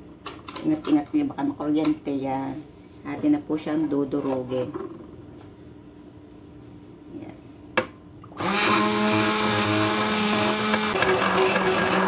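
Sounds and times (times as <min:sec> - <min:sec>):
immersion blender running: 0:08.4 - 0:12.0.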